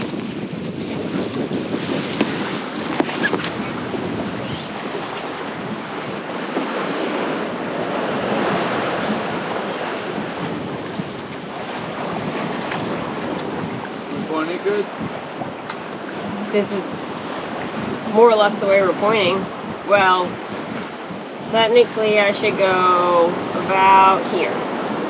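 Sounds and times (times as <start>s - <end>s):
water rushing along hull: 0.0s - 25.0s
wind buffeting microphone: 0.0s - 25.0s.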